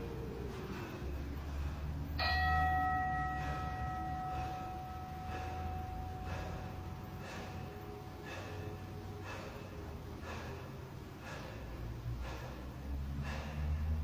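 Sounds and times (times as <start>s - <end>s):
short hard breaths: 0.0s - 14.0s
metallic bell-like ring: 2.2s - 9.1s.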